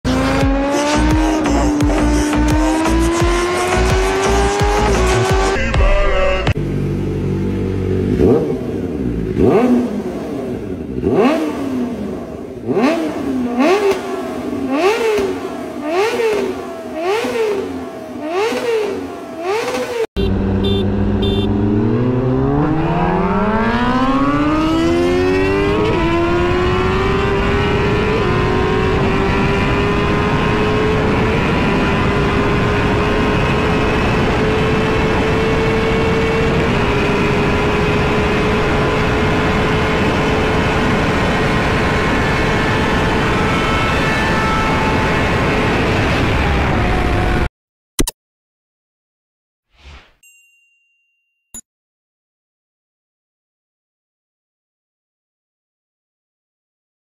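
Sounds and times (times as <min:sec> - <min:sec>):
motorcycle engine at full speed: 0:00.0 - 0:05.6, 0:06.5 - 0:47.5
motorcycle engine throttle blips: 0:12.8 - 0:24.5.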